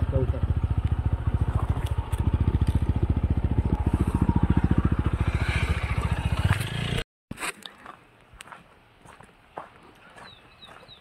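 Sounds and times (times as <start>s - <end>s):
motorcycle engine running at low revs: 0.0s - 7.0s.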